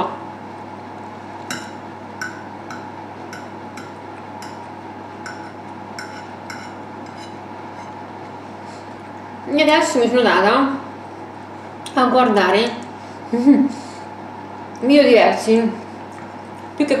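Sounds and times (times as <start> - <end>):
background hum: 0.0 - 17.0
fork clinking on ceramic plate: 1.5 - 8.0.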